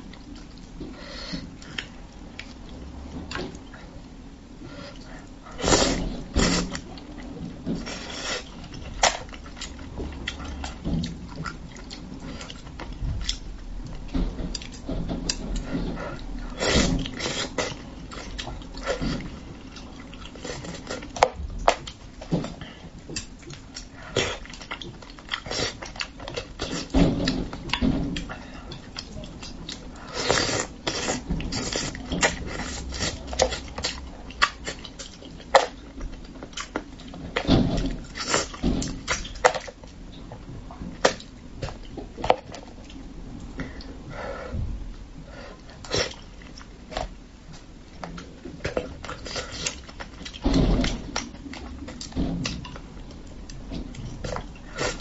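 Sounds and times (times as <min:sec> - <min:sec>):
wet chewing: 0:04.8 - 0:39.8
slurping: 0:30.0 - 0:34.0.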